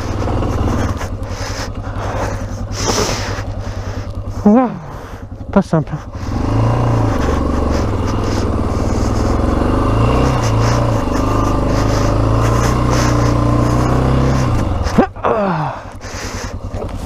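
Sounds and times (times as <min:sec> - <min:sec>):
motorcycle engine running under load: 0:00.0 - 0:17.0.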